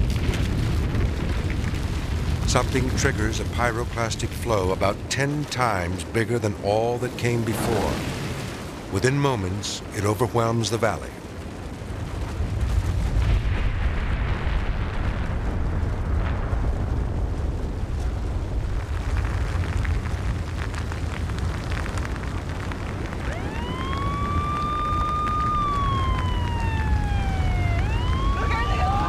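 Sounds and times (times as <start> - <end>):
deep steady rumble: 0.0 - 9.0, 11.2 - 29.0
warning siren wailing: 23.0 - 29.0.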